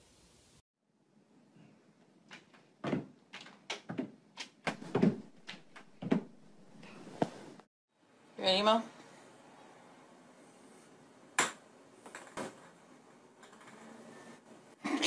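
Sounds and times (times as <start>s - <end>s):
door knocking and banging: 4.7s - 5.3s.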